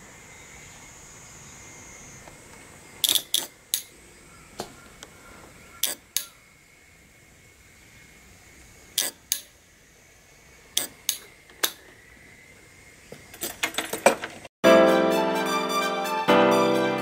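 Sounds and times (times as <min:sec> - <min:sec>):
sharp metallic clicks: 0:03.0 - 0:04.0, 0:05.8 - 0:06.4, 0:09.0 - 0:09.6, 0:10.8 - 0:11.8.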